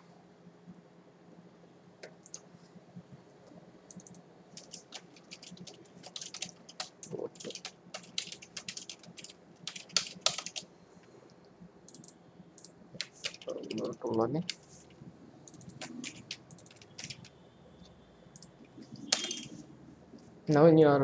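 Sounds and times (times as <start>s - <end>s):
keyboard typing: 2.0s - 2.5s, 3.9s - 10.7s, 11.9s - 19.7s.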